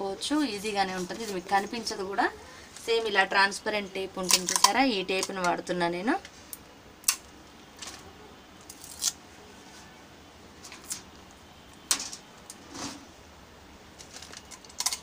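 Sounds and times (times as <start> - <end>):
adhesive tape clicks and rustles: 8.6 - 9.2.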